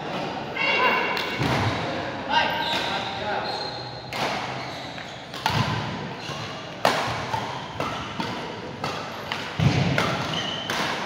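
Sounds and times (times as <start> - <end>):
racket hitting shuttlecock: 4.1 - 4.7, 5.3 - 11.0.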